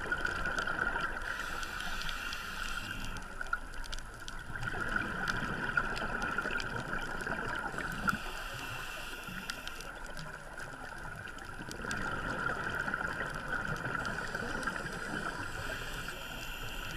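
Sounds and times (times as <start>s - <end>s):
regulator breathing underwater: 1.2s - 3.4s, 7.7s - 10.0s, 14.0s - 16.9s.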